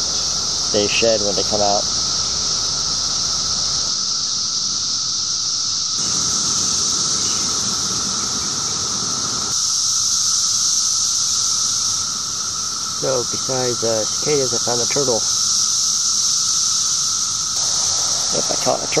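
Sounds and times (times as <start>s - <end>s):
cicadas chorus: 0.0s - 19.0s.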